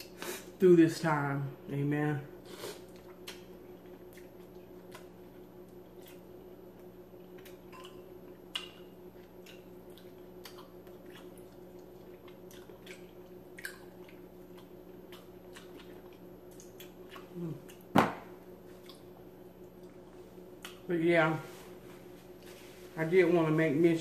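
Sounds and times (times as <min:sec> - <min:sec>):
faint steady hum: 0:00.0 - 0:24.0
wet smacking while chewing: 0:02.8 - 0:17.9, 0:18.6 - 0:20.0.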